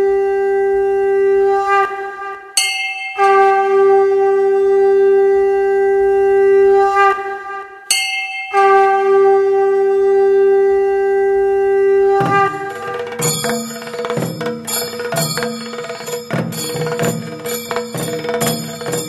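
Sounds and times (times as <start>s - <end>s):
wind instrument long blasts: 0.0s - 19.0s
brief higher tone: 8.4s - 17.0s.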